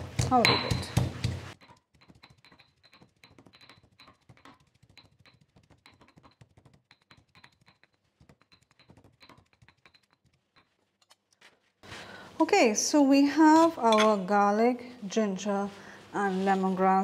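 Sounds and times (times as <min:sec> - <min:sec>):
stone pestle pounding in mortar: 0:00.0 - 0:10.0.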